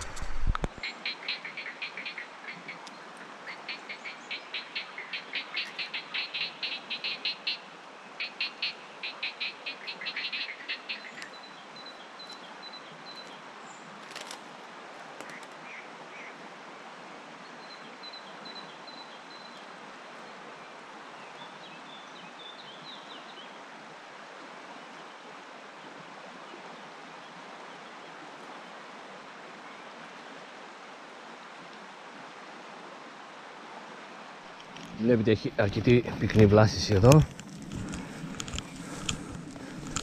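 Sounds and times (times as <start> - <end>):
river water flowing: 0.0 - 40.0
sharp clicks: 37.0 - 40.0.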